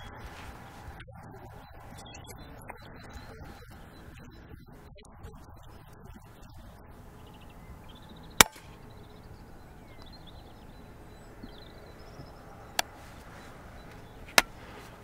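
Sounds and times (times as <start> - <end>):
faint birdsong chirps: 0.0 - 15.0
air rifle shot: 8.4 - 8.9.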